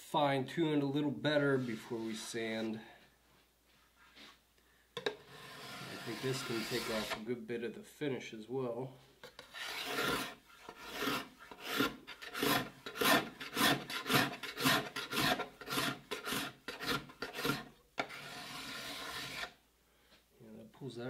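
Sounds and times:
card scraper scraping wood: 5.2 - 7.2, 9.4 - 19.6.

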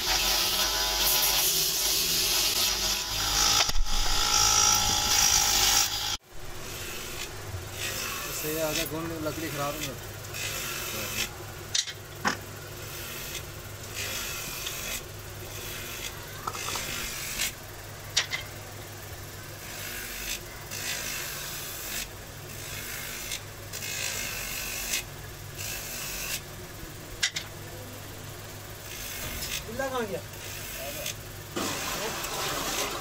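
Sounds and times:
rasping strokes: 0.0 - 11.4.

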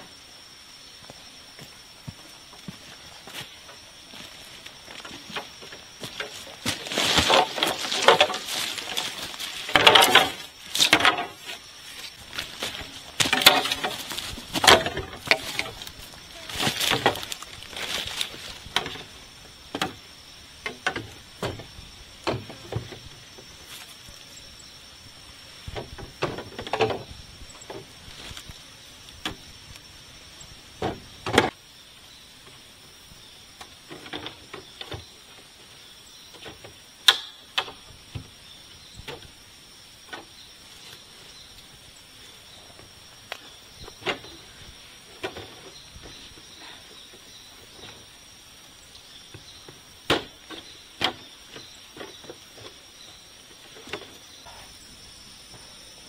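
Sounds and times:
rustles in dry leaves: 2.3 - 19.7, 23.0 - 26.0, 27.0 - 30.6
steps in dry leaf litter: 4.2 - 18.8
bamboo poles knocking together: 5.0 - 11.6, 12.3 - 19.1, 25.8 - 27.1.

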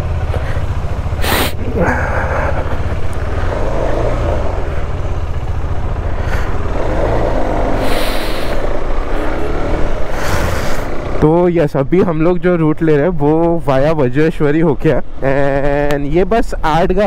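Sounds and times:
motorcycle engine pulling away: 0.0 - 11.2.

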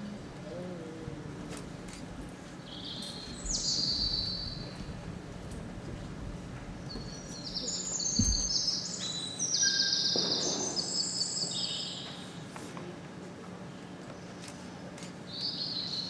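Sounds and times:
steady low hum: 0.0 - 9.6
recorded birdsong: 2.6 - 5.0, 6.8 - 12.4, 14.1 - 16.0
soft low thump: 8.2 - 8.6.

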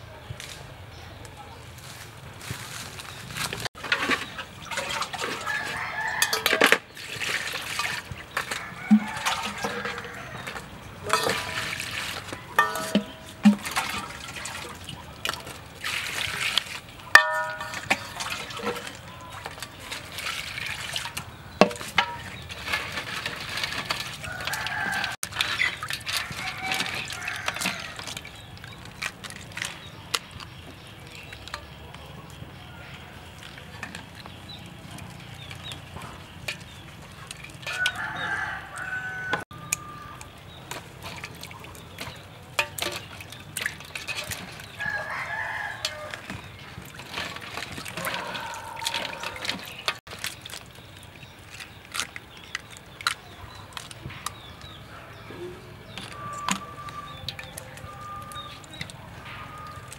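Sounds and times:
water splashing in a metal basin: 3.7 - 59.9
rooster crowing: 5.2 - 6.6, 8.5 - 10.7, 24.2 - 25.2, 37.7 - 40.2, 44.8 - 46.3, 47.9 - 49.7.

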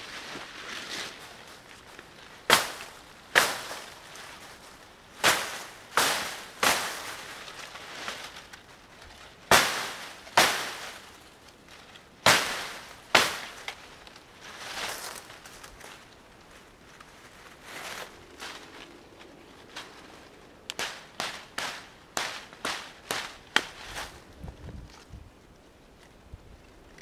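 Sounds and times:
dry leaves rustling: 0.0 - 26.4
dry sticks snapping: 5.2 - 14.3, 17.9 - 23.8.

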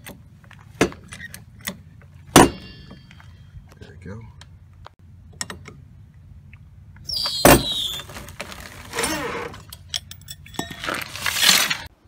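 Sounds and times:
short falling squeak: 7.0 - 9.6
scraping: 7.2 - 11.9.

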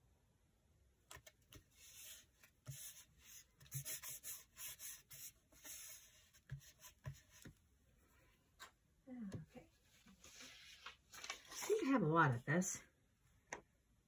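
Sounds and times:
hands rubbing paper: 1.5 - 7.5.

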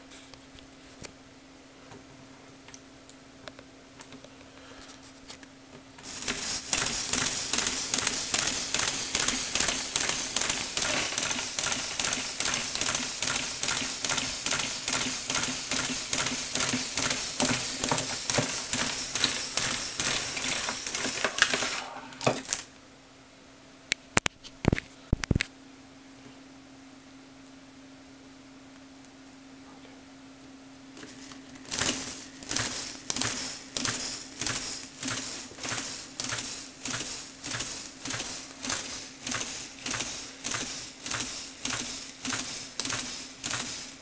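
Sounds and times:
plastic gears clattering: 6.0 - 22.7, 31.0 - 44.0.

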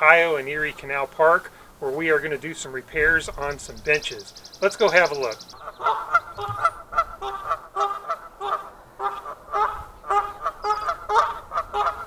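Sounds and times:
geese honking: 3.4 - 12.0.

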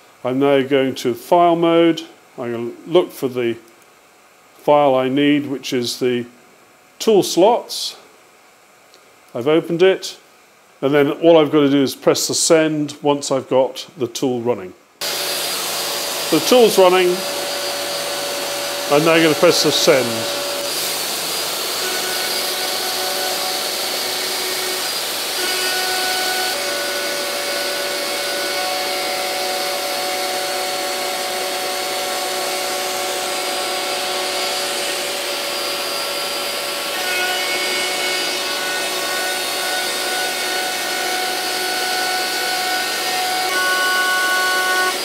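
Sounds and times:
dust extractor running: 15.0 - 45.0
router spindle whining: 15.0 - 45.0.

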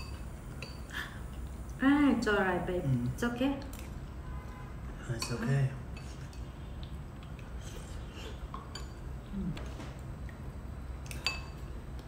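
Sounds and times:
spoons clinking on bowls: 0.0 - 0.9, 5.1 - 6.5, 11.1 - 11.7.

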